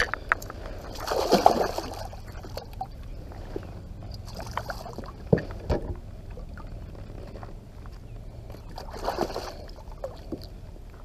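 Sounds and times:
water splashing and trickling: 0:00.0 - 0:11.0.

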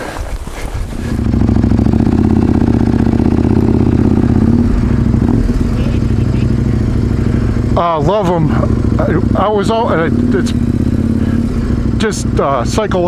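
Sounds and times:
motorcycle engine idling: 0:00.8 - 0:13.0.

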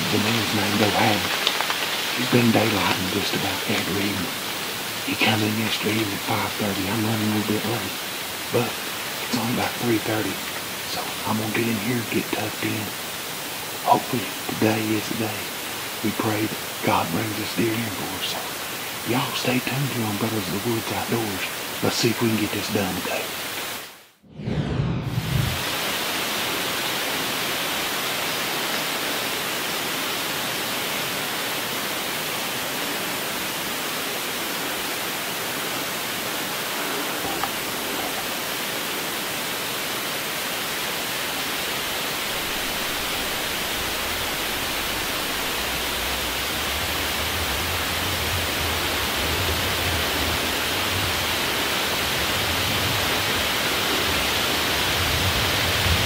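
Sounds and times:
wind hissing through trees: 0:00.0 - 0:24.2, 0:25.0 - 0:56.0
wind rumbling on microphone: 0:24.3 - 0:25.8.

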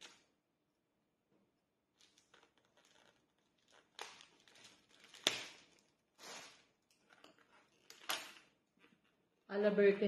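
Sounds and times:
wrapping rustling and crinkling: 0:01.9 - 0:09.1.

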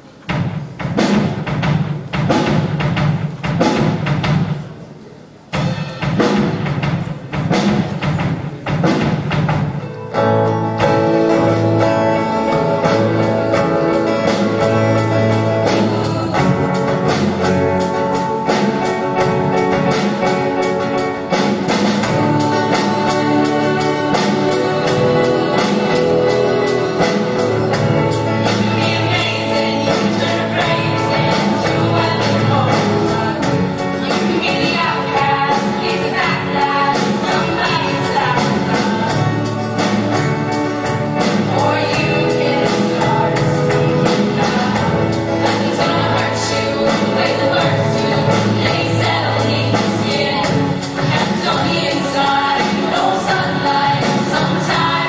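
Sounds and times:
live band playing: 0:00.0 - 0:55.0
choir singing: 0:11.3 - 0:19.0, 0:19.9 - 0:40.2, 0:41.2 - 0:55.0.

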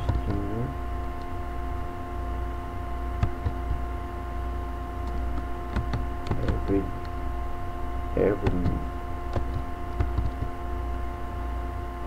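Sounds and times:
electrical hum with tones: 0:00.0 - 0:12.0
keyboard clicks: 0:05.0 - 0:07.1, 0:08.4 - 0:10.5.

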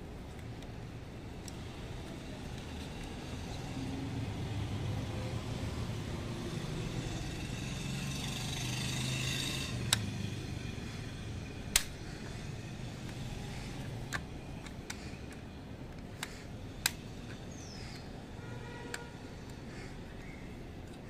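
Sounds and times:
vehicle engine: 0:01.0 - 0:15.8
sharp click: 0:11.7 - 0:12.0.

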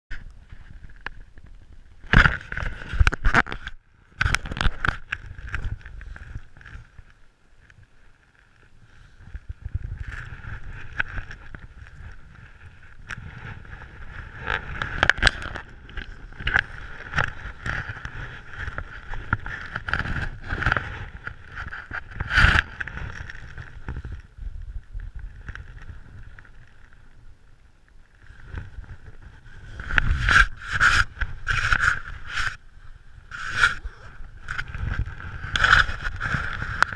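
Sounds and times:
fabric rubbing against microphone: 0:28.2 - 0:36.9.

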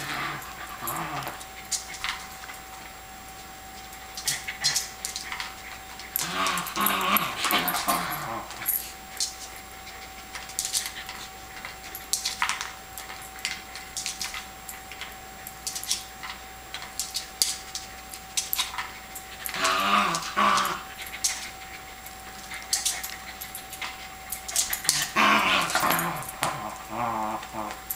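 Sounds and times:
dog whiny grumbles: 0:00.0 - 0:01.7, 0:05.7 - 0:08.9, 0:19.4 - 0:23.4, 0:24.6 - 0:27.9.

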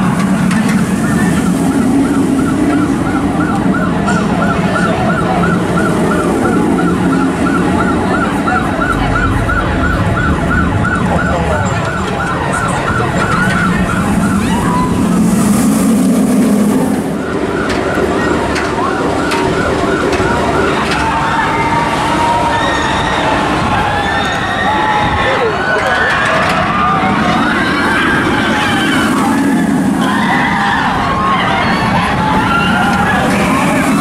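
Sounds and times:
steady low hum: 0:00.0 - 0:17.5, 0:28.1 - 0:31.2, 0:32.0 - 0:34.0
rushing noise: 0:00.0 - 0:18.4, 0:26.6 - 0:34.0
siren-like warbling tone: 0:00.0 - 0:20.8, 0:26.7 - 0:34.0
crowd noise: 0:00.0 - 0:34.0.

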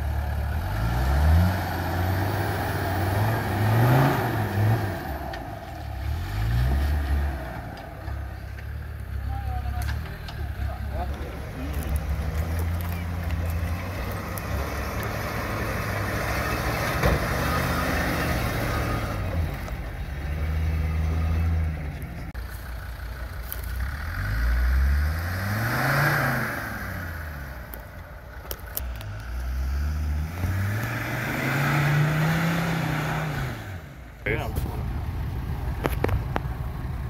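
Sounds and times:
off-road engines revving: 0:00.0 - 0:37.0.

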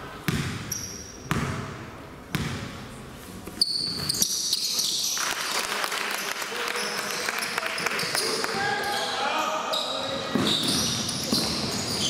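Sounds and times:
basketball bouncing: 0:00.2 - 0:02.8
sneakers squeaking on floor: 0:00.3 - 0:02.7, 0:03.4 - 0:05.2, 0:06.7 - 0:12.0
voices in a hall: 0:01.8 - 0:12.0.

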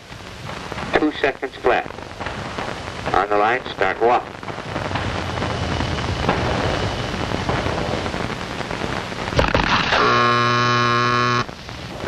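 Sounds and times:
sharp cracks: 0:00.0 - 0:12.0
steady hiss: 0:00.0 - 0:12.0
timing buzzer: 0:09.4 - 0:11.5.

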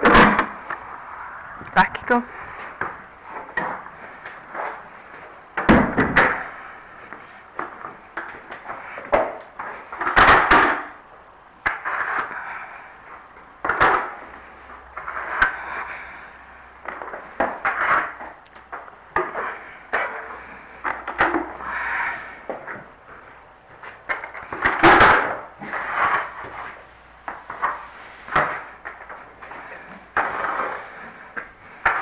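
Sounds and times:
fork scraping stable floor: 0:25.6 - 0:26.8.

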